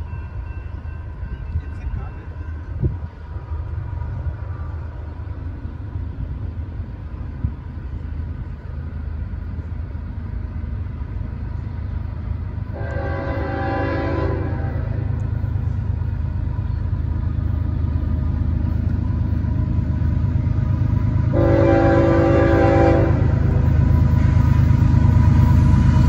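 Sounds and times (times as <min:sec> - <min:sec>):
train rumbling: 0:00.0 - 0:26.0
locomotive air horn blast: 0:12.7 - 0:15.1, 0:21.3 - 0:23.6.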